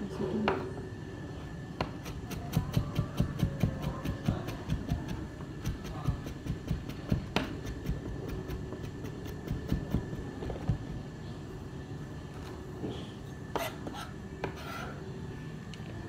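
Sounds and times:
knife chopping on cutting board: 0:01.8 - 0:10.9.

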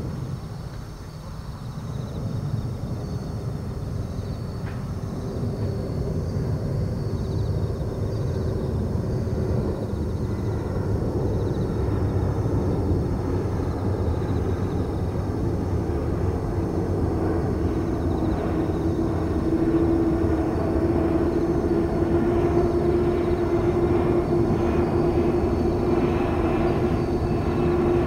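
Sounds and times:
jet engines rumbling overhead: 0:00.0 - 0:28.0
thin whining tones: 0:09.6 - 0:28.0.

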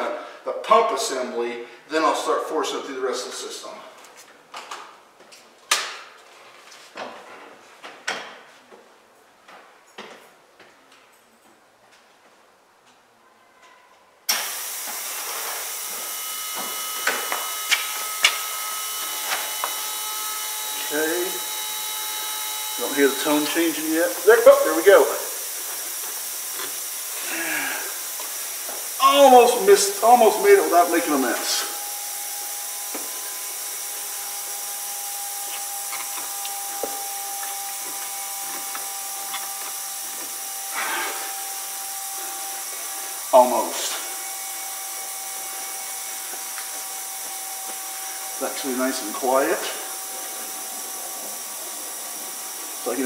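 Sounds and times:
fuel pump whine and hiss: 0:14.3 - 0:53.0.

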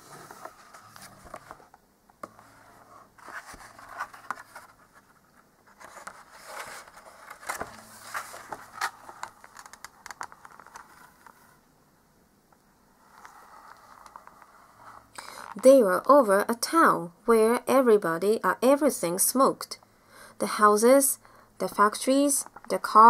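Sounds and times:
book pages rustling: 0:00.0 - 0:11.6, 0:13.1 - 0:15.6.

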